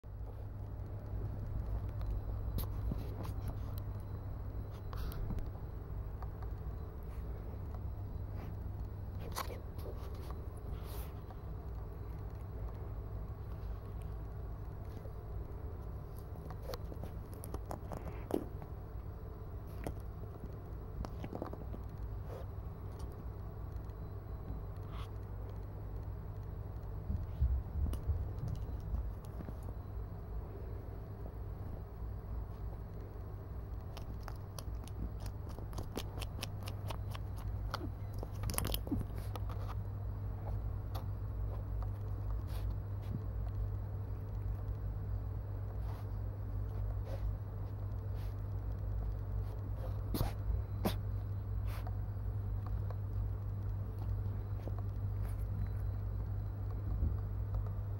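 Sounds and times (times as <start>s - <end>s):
cat teeth and claws on plastic: 33.8s - 39.8s.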